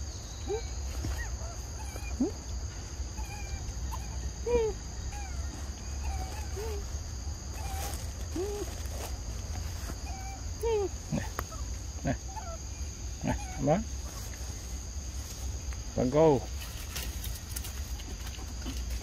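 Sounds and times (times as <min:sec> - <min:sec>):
forest insects droning: 0:00.0 - 0:19.0.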